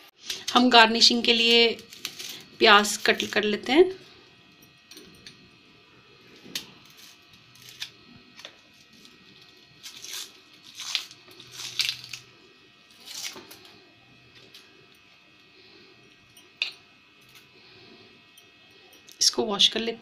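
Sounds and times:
onion skin crackling and tearing: 1.4 - 3.6, 6.4 - 14.6.

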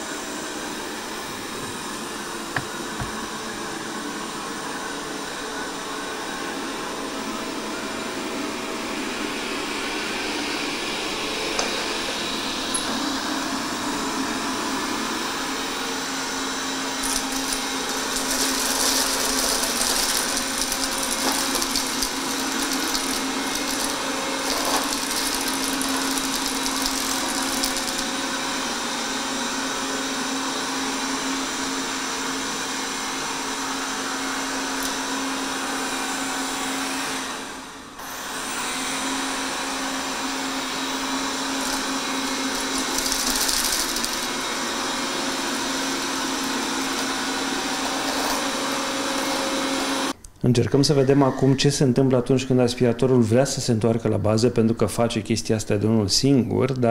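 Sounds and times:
robot vacuum whirring: 11.5 - 29.3, 37.3 - 50.1.

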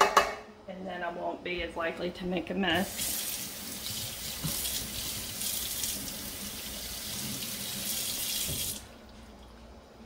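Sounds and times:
tap running into sink: 3.9 - 5.2, 7.1 - 8.8.

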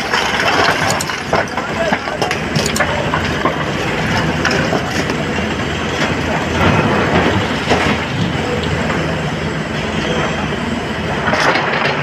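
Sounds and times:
stone clattering into metal truck bed: 0.0 - 1.6
excavator diesel engine: 0.0 - 12.0.

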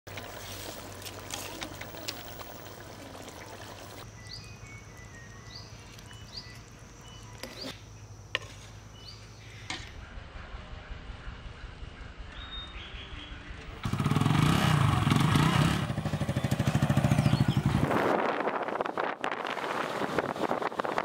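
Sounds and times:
curry bubbling and crackling: 0.1 - 4.1.

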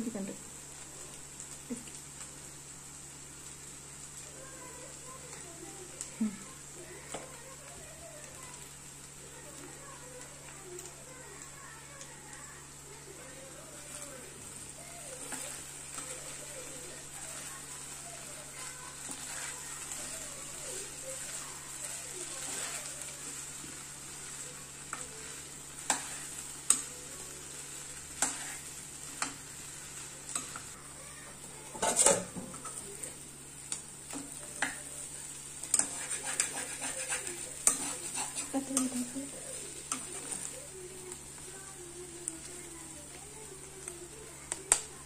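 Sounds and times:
potatoes sizzling in oil: 0.0 - 45.0
metal spoon scraping pan: 25.8 - 26.9, 28.2 - 29.3, 31.7 - 32.8, 35.6 - 39.1.

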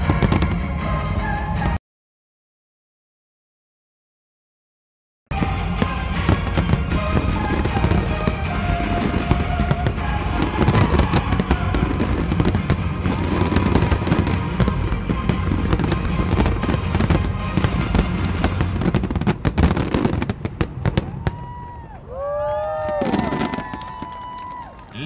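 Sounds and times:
fireworks bangs rumbling: 0.0 - 1.8, 5.3 - 25.0
rapid crackling: 5.3 - 20.9.

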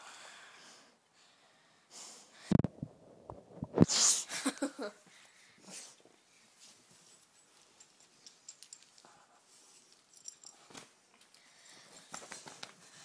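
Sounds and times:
dog nasal sounds: 3.8 - 4.3.

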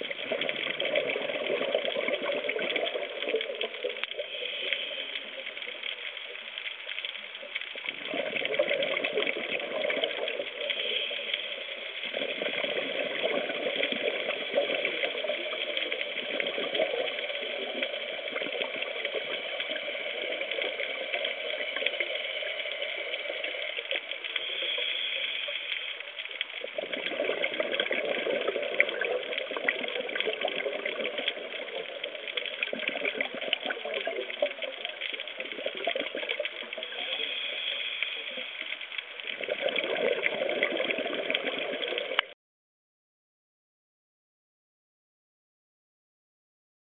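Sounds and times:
steady hiss: 0.0 - 42.2
exhaled bubbles underwater: 0.0 - 42.4.

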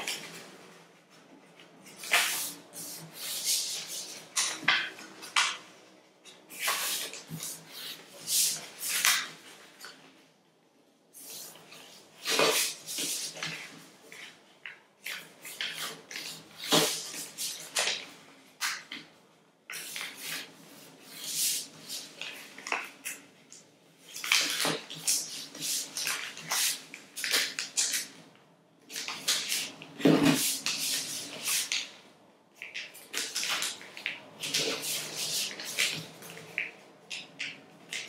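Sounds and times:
paper crinkling and rustling: 28.9 - 32.0, 32.6 - 38.0.

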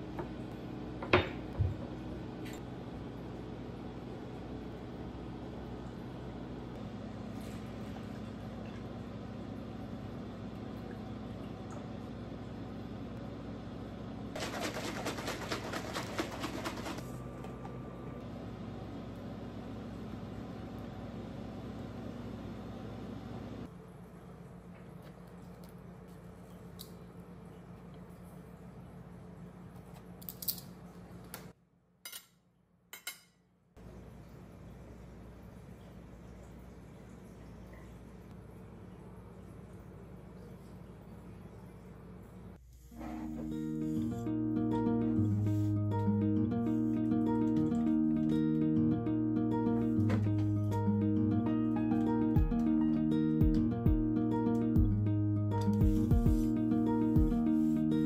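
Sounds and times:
shaker bottle rattling slosh: 14.4 - 17.1
steady low hum: 33.8 - 58.0.

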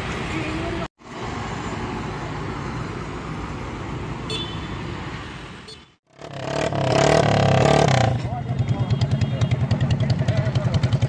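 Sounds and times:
street traffic noise: 0.0 - 11.0
scooter engine with open exhaust: 8.1 - 11.0.

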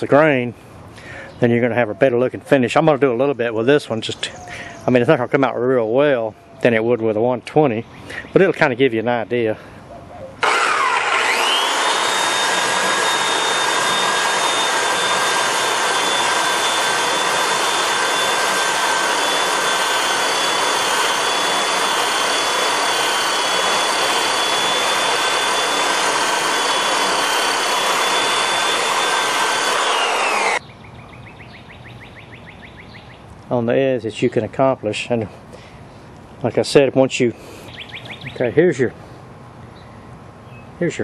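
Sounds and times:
electric sander whining: 10.4 - 30.6.

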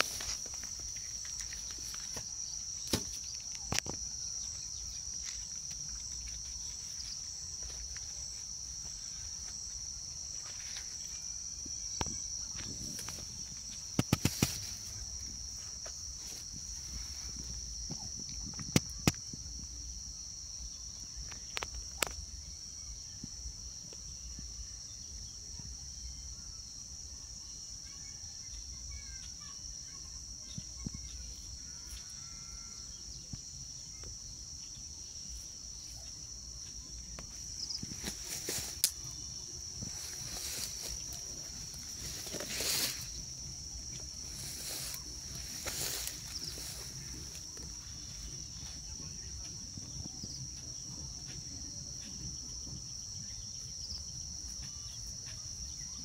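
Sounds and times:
outdoor ambience: 0.0 - 56.0
high-pitched insect drone: 30.3 - 56.0
rustling: 37.4 - 47.8.

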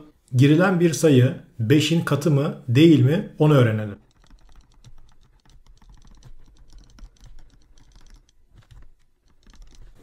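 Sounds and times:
stylus tapping on drawing tablet: 4.0 - 10.0.

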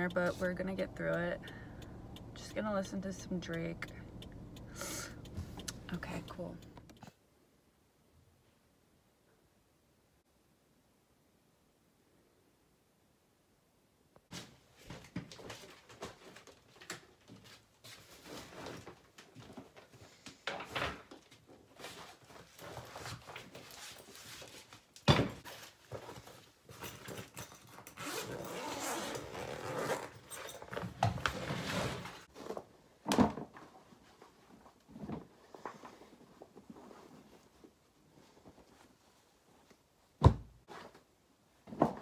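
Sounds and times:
bags and fabric rustling: 21.5 - 33.0.

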